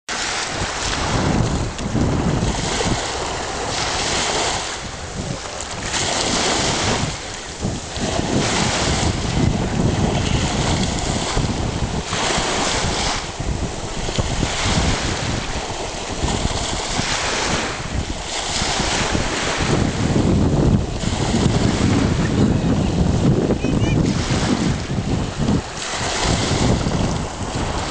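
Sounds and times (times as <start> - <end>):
surf washing up a beach: 0.1 - 27.9
wind buffeting microphone: 0.1 - 27.9.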